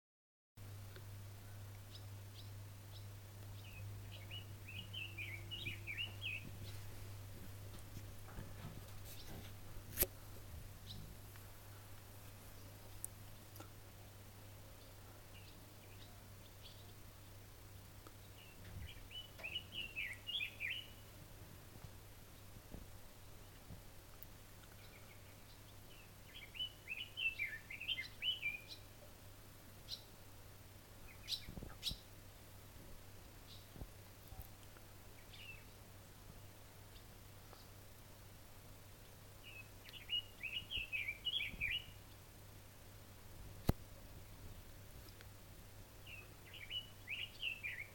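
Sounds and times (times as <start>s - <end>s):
songbird chirping and twittering: 0.9s - 9.6s, 10.8s - 21.2s, 21.8s - 47.9s
songbird warbling: 3.6s - 6.8s, 39.4s - 42.0s, 46.0s - 47.9s.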